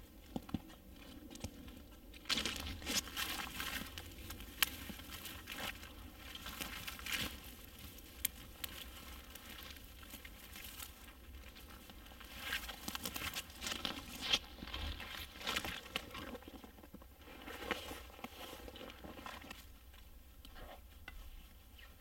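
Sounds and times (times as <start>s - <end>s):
footsteps on undergrowth: 0.0s - 16.4s
dry branch twigs crackling: 2.2s - 16.4s.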